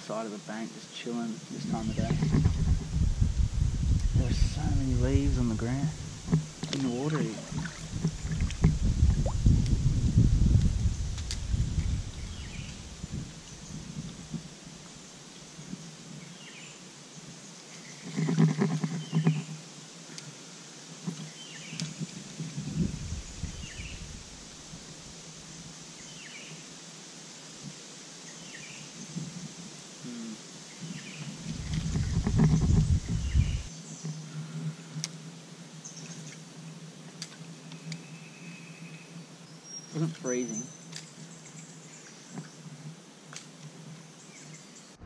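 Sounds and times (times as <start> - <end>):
steady high hiss: 0.0 - 2.2, 3.2 - 18.2, 18.9 - 31.8, 33.2 - 45.0
low rumbling noise: 1.5 - 14.4
bird chirping: 37.7 - 42.6.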